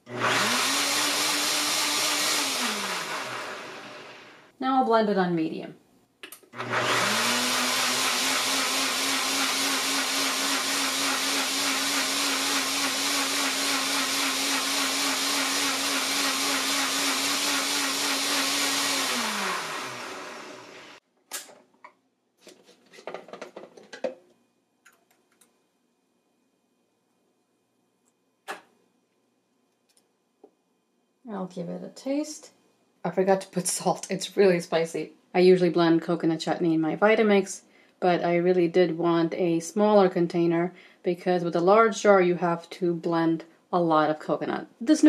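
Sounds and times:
blender motor blending: 0.0s - 4.5s, 6.6s - 21.0s.

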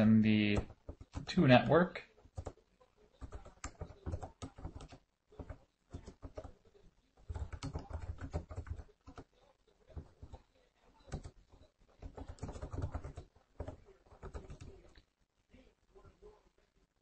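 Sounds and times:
computer keyboard typing: 0.5s - 1.3s, 2.2s - 2.6s, 3.2s - 6.6s, 7.3s - 9.3s, 10.0s - 10.4s, 11.0s - 14.8s.

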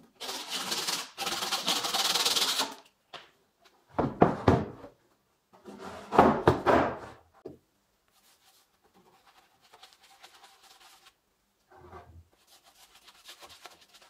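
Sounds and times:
wooden boxes knocking on workbench: 4.0s - 4.9s, 6.1s - 7.6s.

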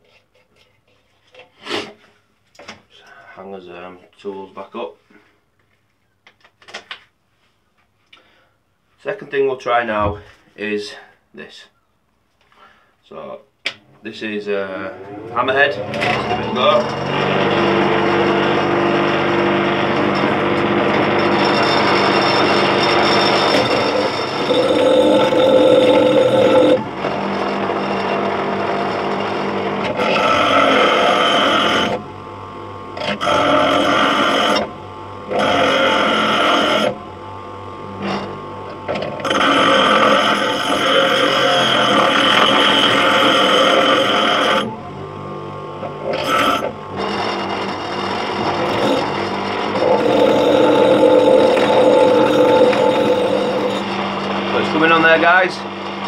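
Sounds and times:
bench grinder grinding metal: 14.2s - 56.0s
grinder motor running: 14.2s - 56.0s.

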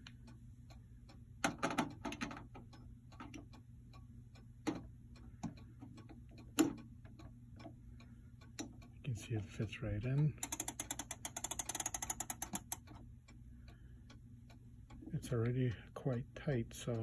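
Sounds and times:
clock ticking: 0.0s - 17.0s
winding key clicks and knocks: 10.4s - 13.0s.

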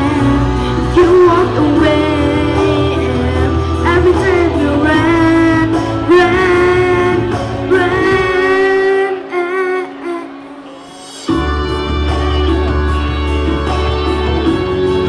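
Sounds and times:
boy singing pop ballad: 0.0s - 11.5s
backing track: 0.0s - 15.0s.

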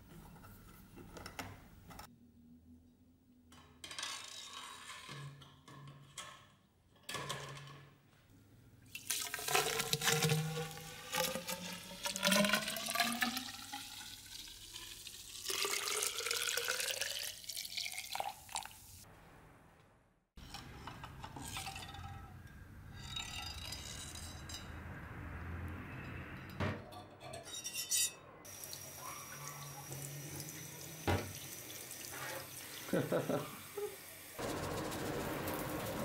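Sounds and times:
liquid pouring into metal tube: 8.9s - 18.7s.

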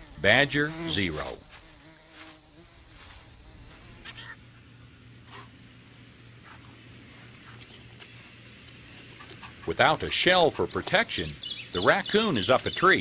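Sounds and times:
high-pitched insect drone: 0.0s - 13.0s
insect chirps: 0.0s - 13.0s.

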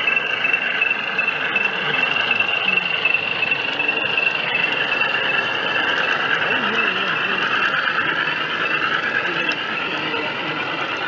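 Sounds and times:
model locomotives whining: 0.0s - 11.0s.

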